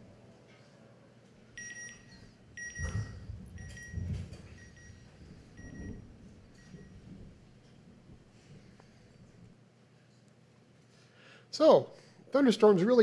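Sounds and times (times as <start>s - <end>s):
electronic pinging beeps: 1.6s - 7.1s.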